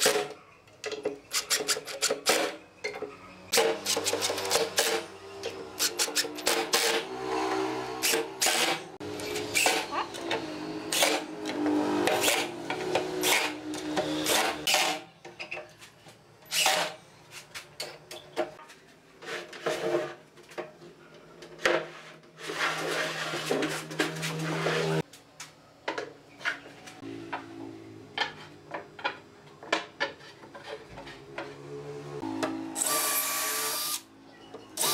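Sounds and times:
screws clicking and knocking: 0.9 - 7.0
cordless drill whirring: 32.8 - 34.0.

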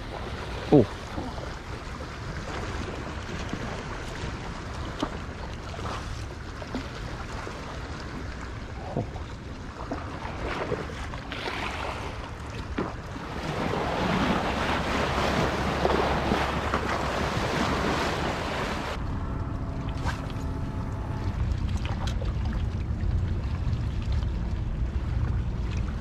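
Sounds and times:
waves lapping against rocks: 0.0 - 19.0
faint steady hum: 15.6 - 26.0.

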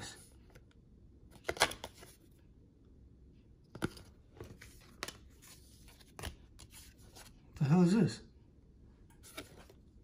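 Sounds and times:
cards rustling and snapping: 1.3 - 2.2, 3.7 - 7.4, 9.2 - 9.8.

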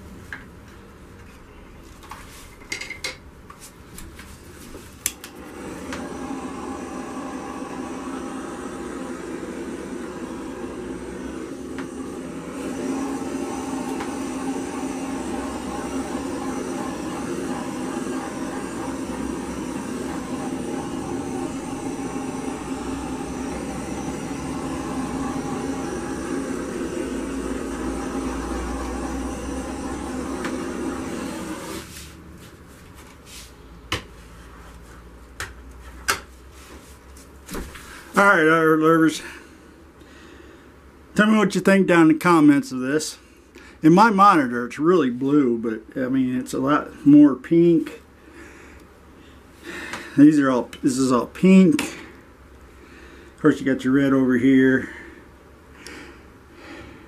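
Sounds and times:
heat gun blowing: 5.2 - 32.2.

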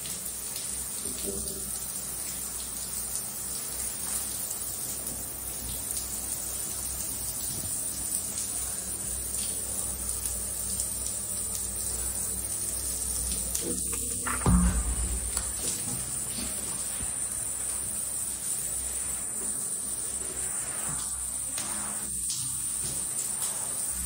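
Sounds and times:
shower water hissing on tiles: 0.0 - 24.0
low thump: 14.3 - 15.7.

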